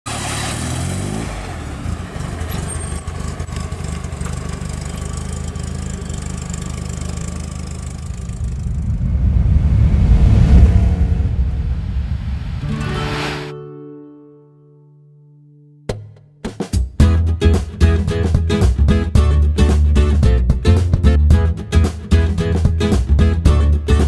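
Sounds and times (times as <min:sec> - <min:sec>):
car engine running: 0:00.1 - 0:13.3
low rumble: 0:07.2 - 0:13.5.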